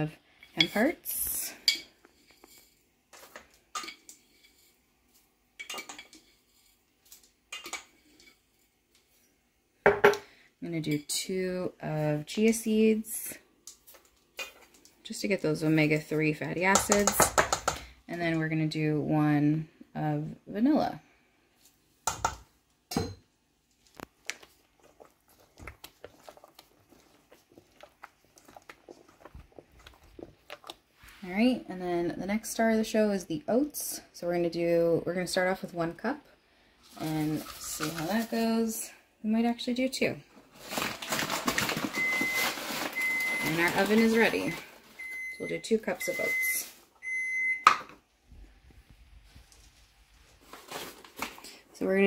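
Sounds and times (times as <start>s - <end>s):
spoon stirring thick batter: 0.5s - 9.3s, 23.8s - 31.3s.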